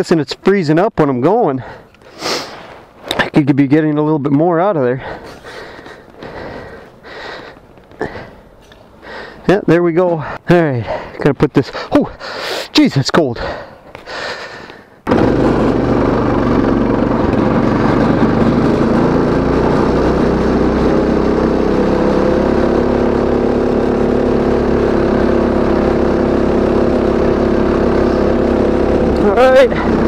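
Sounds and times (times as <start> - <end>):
go kart engine running: 15.0 - 30.0.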